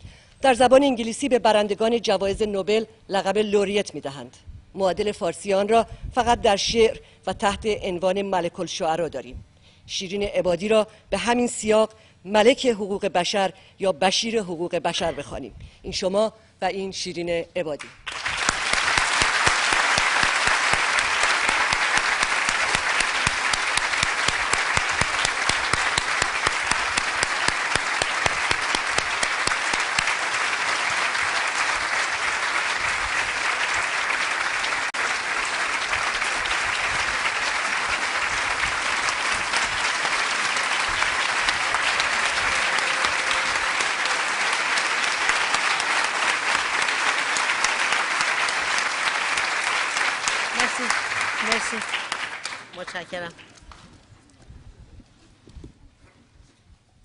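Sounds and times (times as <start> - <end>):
large audience applauding: 18.0 - 53.6.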